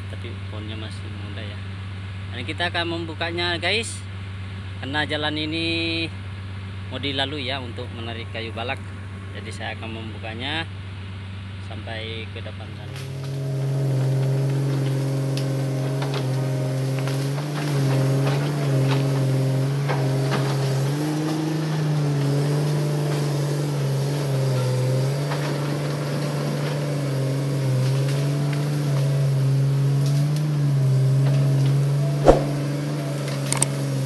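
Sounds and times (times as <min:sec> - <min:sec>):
excavator diesel engine working: 0:12.6 - 0:34.0
branches cracking and breaking: 0:12.9 - 0:34.0.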